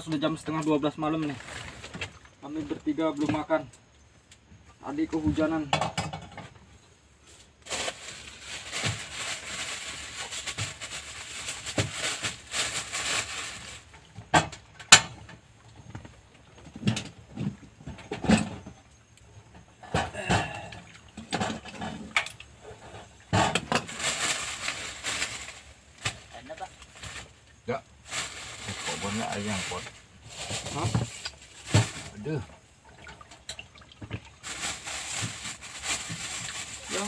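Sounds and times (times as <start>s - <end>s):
handling noises: 5.2s - 37.0s
cooking pot knocks and clanks: 5.7s - 6.5s
rough rustling hiss: 6.3s - 14.2s, 18.2s - 37.0s.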